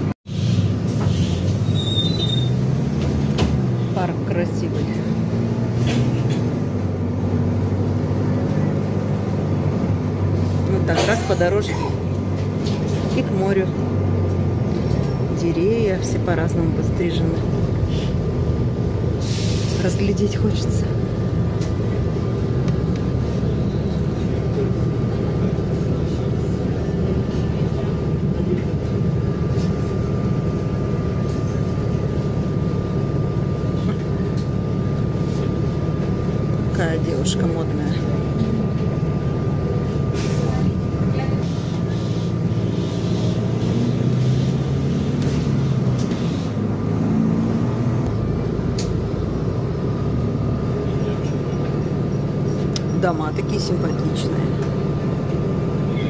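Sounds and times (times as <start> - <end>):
bus engine and road noise: 0.0 - 56.0.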